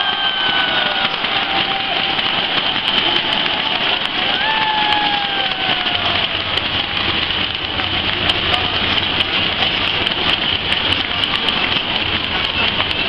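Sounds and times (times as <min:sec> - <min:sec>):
stadium crowd cheering: 0:00.0 - 0:13.0.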